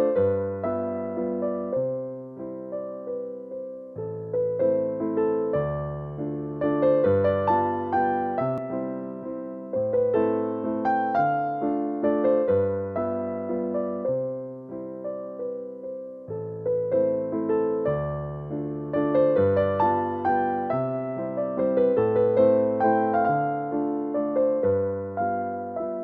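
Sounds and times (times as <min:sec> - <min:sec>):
slow piano melody: 0:00.0 - 0:26.0.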